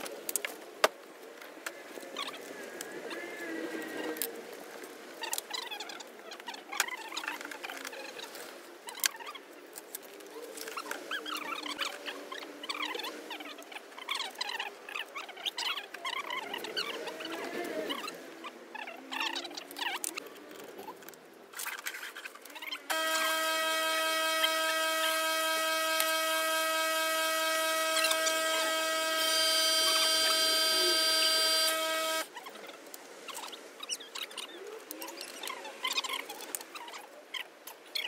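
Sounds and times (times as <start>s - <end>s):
high whine: 22.9s - 32.3s
pressure washer humming: 22.9s - 32.3s
thin higher whine: 22.9s - 32.3s.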